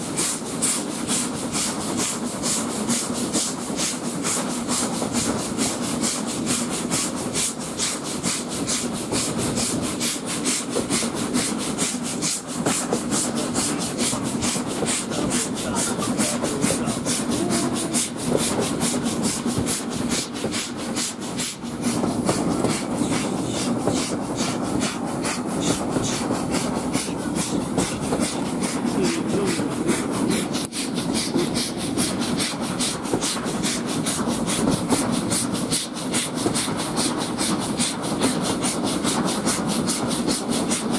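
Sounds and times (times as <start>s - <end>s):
coaches running on rails: 0.0s - 40.9s
steam locomotive exhaust beats: 0.0s - 40.9s.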